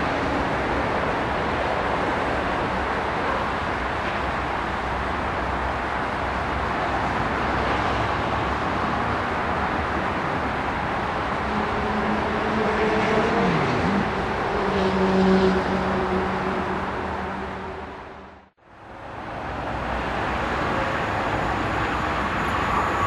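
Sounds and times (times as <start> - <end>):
train rushing rail noise: 0.0 - 23.0.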